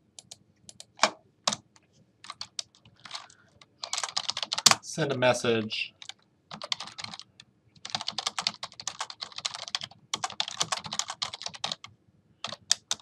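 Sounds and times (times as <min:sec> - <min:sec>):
typing on a keyboard: 0:02.2 - 0:04.8, 0:06.0 - 0:13.0.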